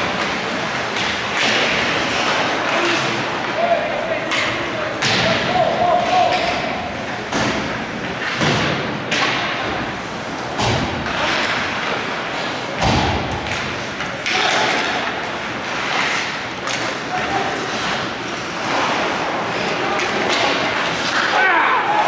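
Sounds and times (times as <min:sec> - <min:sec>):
players shouting: 0:02.3 - 0:07.0, 0:18.7 - 0:22.0.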